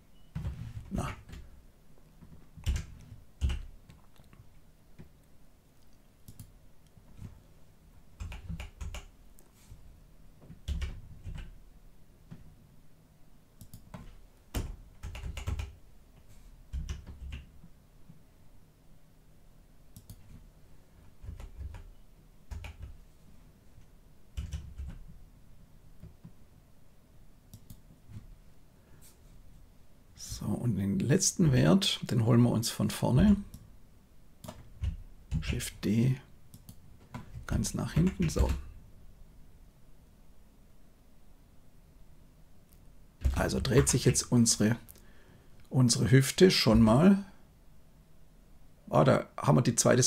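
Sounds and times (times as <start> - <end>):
keyboard and mouse clicks: 2.2 - 7.3, 8.2 - 9.5, 13.6 - 15.8, 20.0 - 20.4, 27.5 - 27.9, 36.5 - 38.6.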